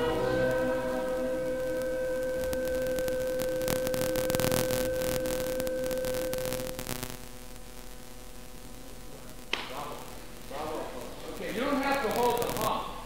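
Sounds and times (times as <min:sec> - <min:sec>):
choir and orchestra chord: 0:00.0 - 0:01.5
crackling static: 0:00.0 - 0:13.0
low hiss: 0:00.0 - 0:13.0.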